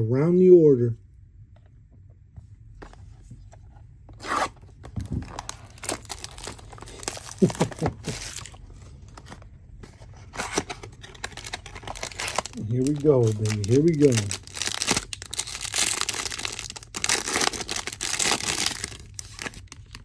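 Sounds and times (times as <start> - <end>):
wrapper tearing and crinkling: 5.2 - 8.6, 10.3 - 20.0.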